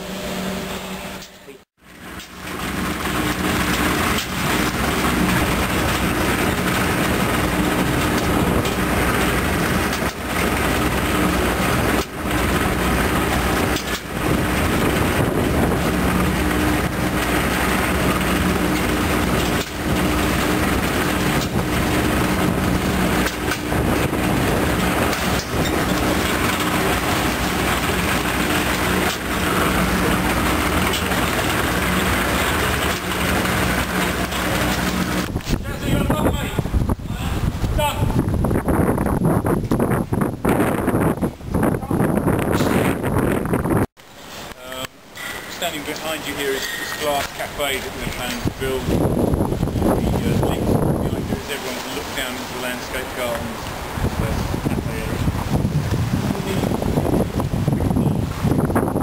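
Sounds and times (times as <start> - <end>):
hoist drive mechanical noise: 0.0 - 35.6
low hum: 0.0 - 43.9.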